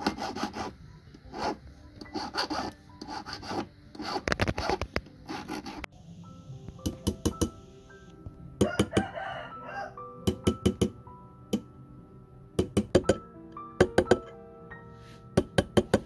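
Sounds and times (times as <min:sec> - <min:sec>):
soft background music: 0:00.0 - 0:16.0
rooster crowing: 0:08.6 - 0:10.0.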